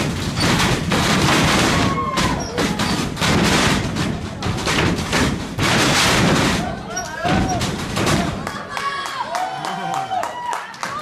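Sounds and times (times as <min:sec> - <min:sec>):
bodies hitting ring canvas: 0:00.0 - 0:08.4
crowd clapping: 0:08.3 - 0:11.0.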